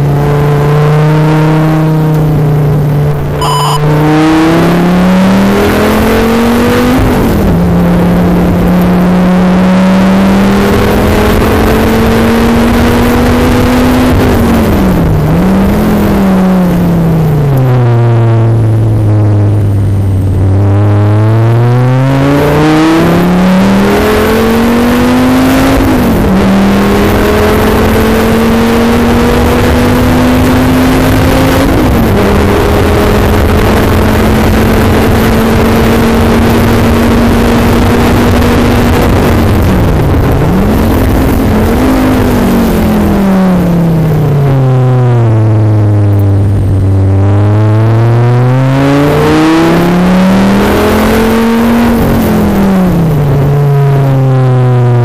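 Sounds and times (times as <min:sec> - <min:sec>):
performance car engine revving: 0:00.0 - 0:55.0
wind noise: 0:31.6 - 0:47.4.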